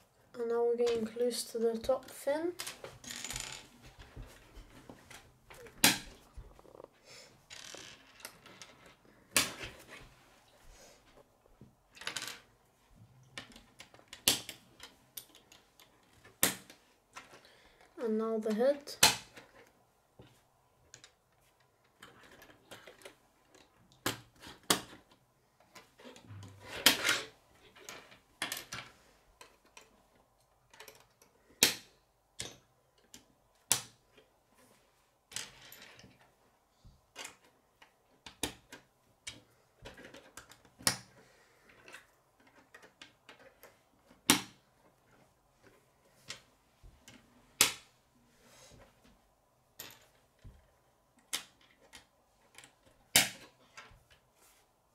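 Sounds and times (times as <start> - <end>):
plastic pieces snapping together: 13.4 - 14.6
plastic parts clattering on wood: 20.9 - 33.3, 35.3 - 36.3, 37.1 - 47.8.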